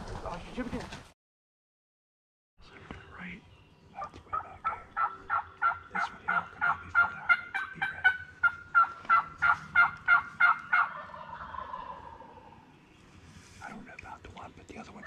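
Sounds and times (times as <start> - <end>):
turkey calling: 3.9 - 12.7.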